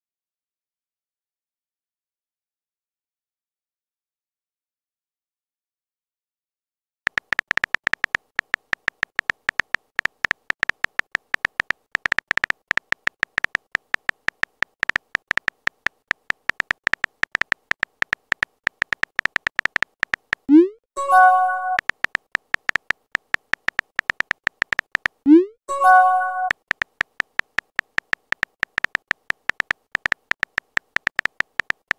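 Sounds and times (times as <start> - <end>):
high electronic keypress beeps: 7.1 - 15.6, 16.4 - 31.9
brief multi-note chime: 21.0 - 21.8.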